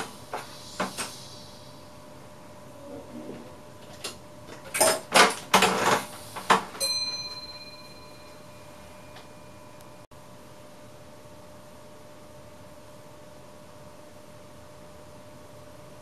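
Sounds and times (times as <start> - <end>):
bell-like chime: 6.8 - 10.0.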